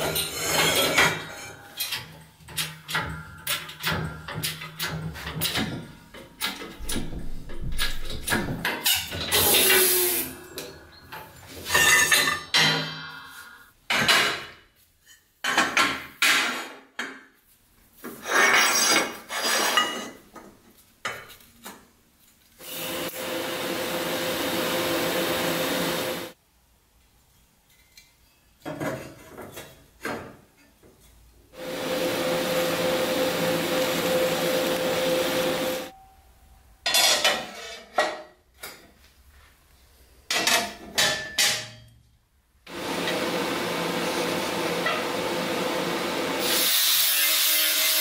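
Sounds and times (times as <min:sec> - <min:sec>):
welding arc hiss with hum: 0:09.3 - 0:10.4, 0:22.6 - 0:26.4, 0:31.6 - 0:35.9, 0:42.7 - 0:48.0.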